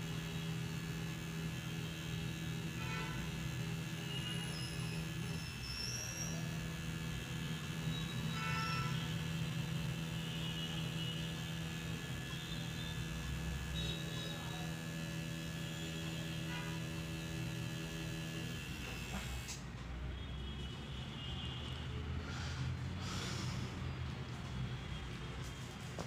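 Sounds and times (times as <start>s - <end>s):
tattoo machine buzzing: 0.0s - 19.6s.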